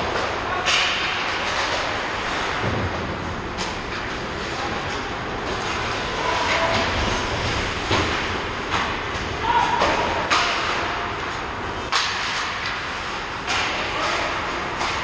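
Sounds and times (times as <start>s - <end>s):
hockey sticks and puck clacking: 0.0s - 15.0s.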